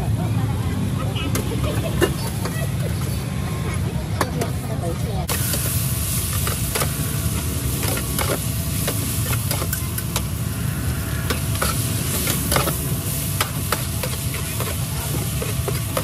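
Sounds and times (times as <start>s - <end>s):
food sizzling in oil: 5.2s - 16.0s
low rumble: 5.9s - 15.0s.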